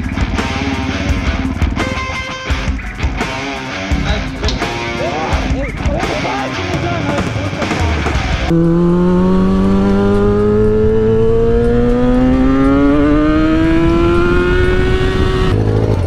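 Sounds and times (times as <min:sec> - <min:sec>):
motorcycle engine accelerating: 0:00.0 - 0:03.8, 0:08.2 - 0:16.0.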